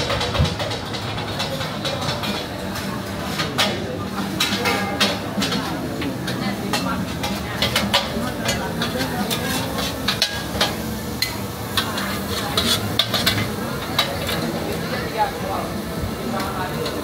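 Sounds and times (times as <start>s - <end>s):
food sizzling: 0.9s - 17.0s
metal spatula scraping wok: 3.1s - 14.4s.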